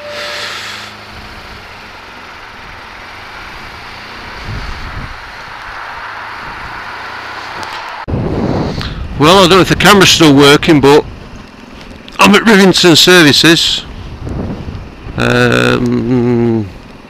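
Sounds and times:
motorcycle engine running: 0:00.0 - 0:05.6, 0:08.3 - 0:17.0
wind hiss on microphone: 0:04.3 - 0:05.4.

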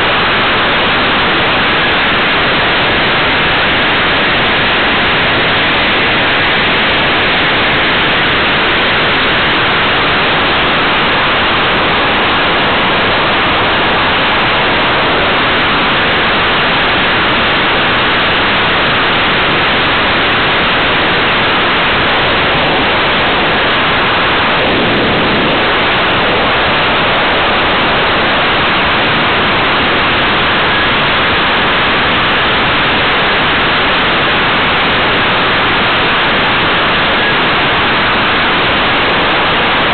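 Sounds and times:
airflow rushing over camera: 0:24.2 - 0:27.2.

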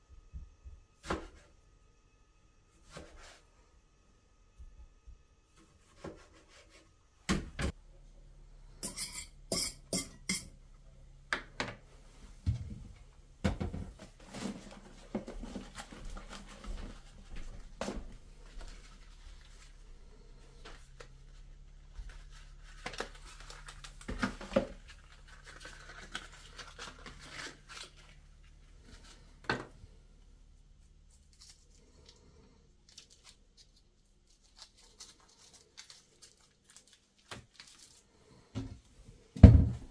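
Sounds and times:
faint steady hum: 0:00.0 - 0:39.9
kitchen utensils and dishes clinking: 0:08.8 - 0:10.6.

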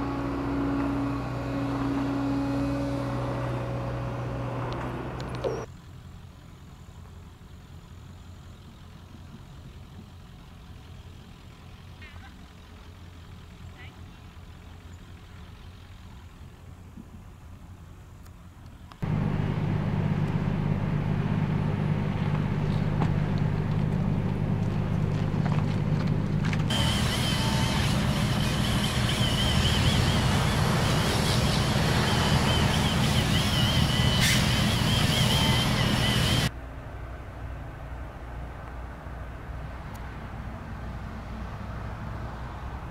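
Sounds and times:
engine idling: 0:04.2 - 0:17.0, 0:19.0 - 0:36.5.

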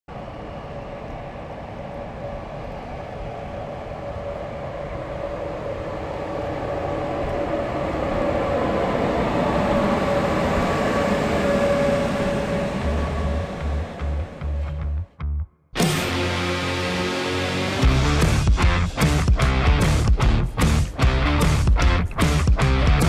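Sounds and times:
locomotive whine: 0:00.1 - 0:15.0, 0:15.8 - 0:20.0
train rumbling past: 0:00.1 - 0:15.1.

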